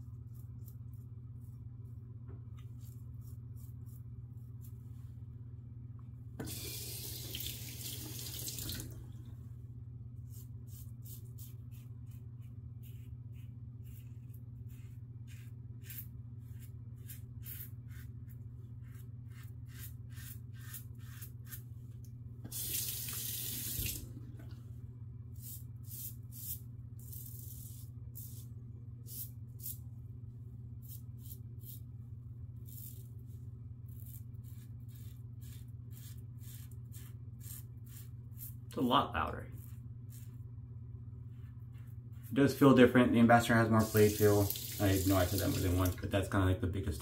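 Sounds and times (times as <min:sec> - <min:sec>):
tap running: 0:06.4 - 0:09.0
razor scraping stubble: 0:10.3 - 0:21.7, 0:33.9 - 0:38.6, 0:39.4 - 0:40.4.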